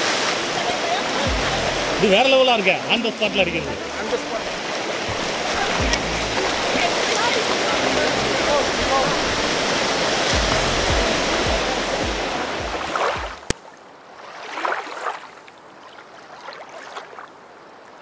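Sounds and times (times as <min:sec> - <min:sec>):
waterfall rushing: 0:00.0 - 0:13.5
low thumps: 0:01.3 - 0:02.2, 0:05.1 - 0:06.8, 0:10.3 - 0:13.5.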